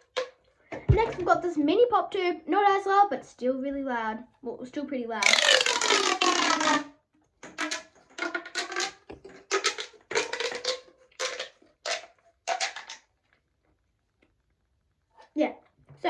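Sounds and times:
plastic pop tube popping and whistling: 0.0 - 1.2, 5.2 - 13.4.

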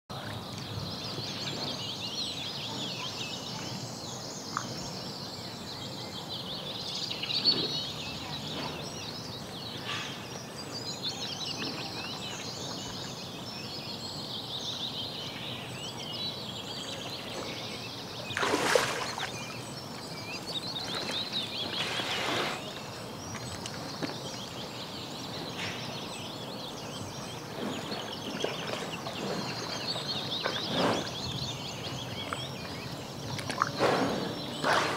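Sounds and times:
small birds chirping and singing: 0.1 - 34.9
splashes in shallow water: 18.2 - 22.7.

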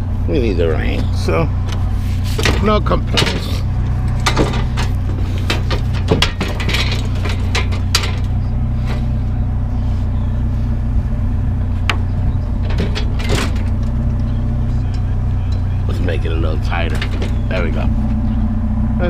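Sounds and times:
vehicle engine idling: 0.0 - 19.0
knocks and clicks: 2.4 - 8.4, 11.9 - 14.3.

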